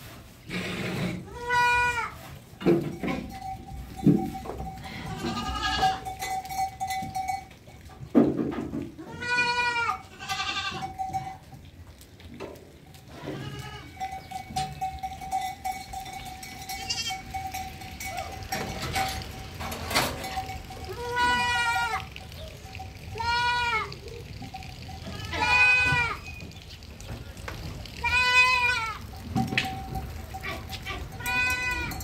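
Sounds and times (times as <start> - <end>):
goats bleating: 1.2 - 2.2, 4.6 - 6.1, 9.0 - 11.4, 13.1 - 14.8, 16.6 - 18.4, 20.4 - 26.4, 27.9 - 32.0.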